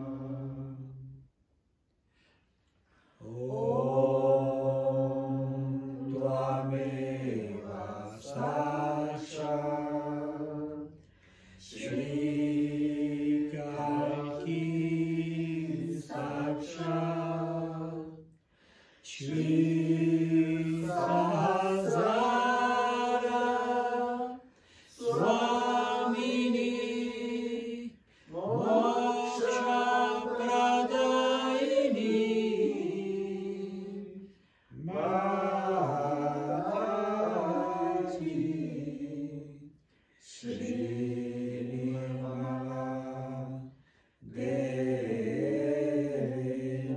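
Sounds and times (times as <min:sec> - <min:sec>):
mantra chanting: 0:11.6 - 0:18.2, 0:19.0 - 0:46.9.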